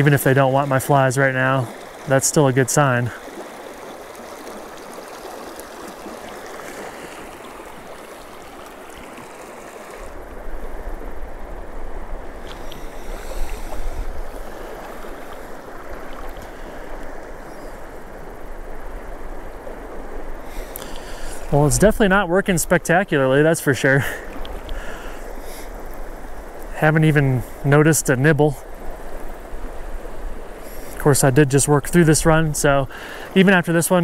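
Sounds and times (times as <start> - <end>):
river flowing over rocks: 0.0 - 18.4.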